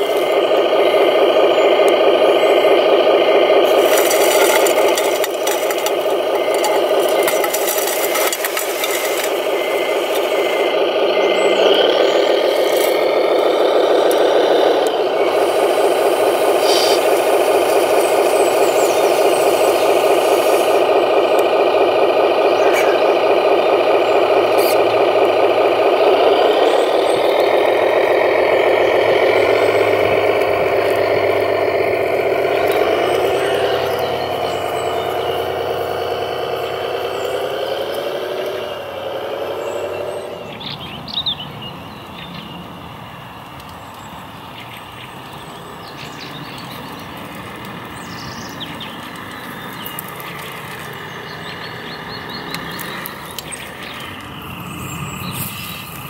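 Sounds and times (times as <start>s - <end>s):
simulated diesel engine sound: 0.0s - 56.0s
rattling: 0.6s - 10.9s.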